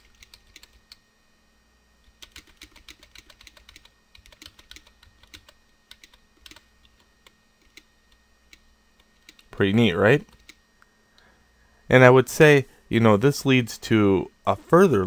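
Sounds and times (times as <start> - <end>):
faint computer keyboard typing: 0.0 - 1.0, 2.0 - 9.5, 10.2 - 10.6.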